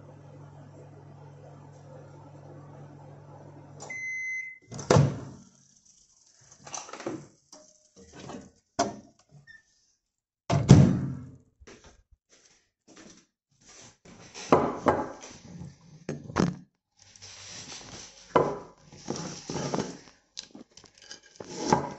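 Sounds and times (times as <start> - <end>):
microwave oven humming: 0.0 - 5.4
microwave beep: 3.8 - 4.7.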